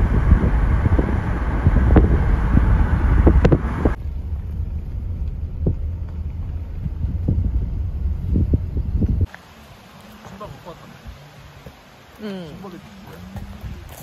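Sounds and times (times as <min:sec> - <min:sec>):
wind buffeting microphone: 0:00.0 - 0:09.3, 0:13.2 - 0:14.0
road rumble: 0:00.0 - 0:14.0.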